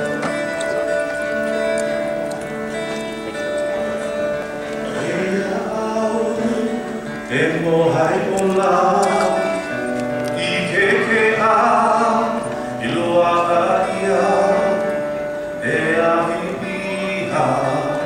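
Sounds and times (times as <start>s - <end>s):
keyboard chords: 0.0s - 18.0s
people singing: 4.9s - 9.6s, 10.4s - 14.9s, 15.6s - 18.0s.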